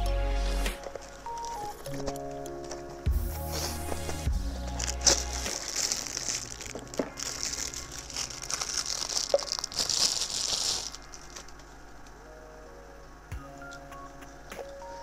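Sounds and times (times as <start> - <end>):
plastic wrapping crinkling: 0.8 - 12.2.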